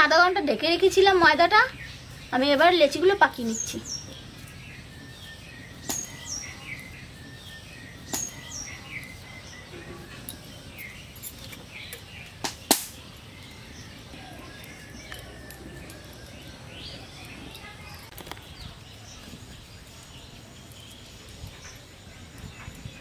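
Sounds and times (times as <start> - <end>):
small birds chirping: 0.0 - 23.0
sharp clicks: 11.9 - 13.0.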